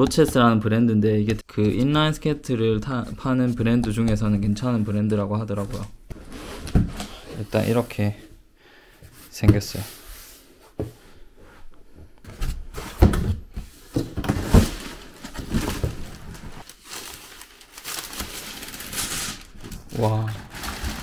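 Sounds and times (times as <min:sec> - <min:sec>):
cardboard knocks and scrapes: 0:05.6 - 0:07.2, 0:12.2 - 0:16.6
tissue paper rustling: 0:14.4 - 0:21.0.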